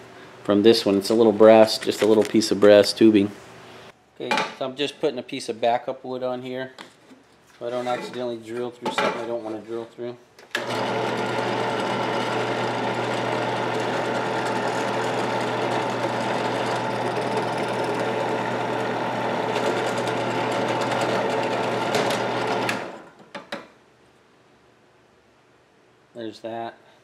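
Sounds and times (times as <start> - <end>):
drill press drilling wood: 10.5 - 23.1.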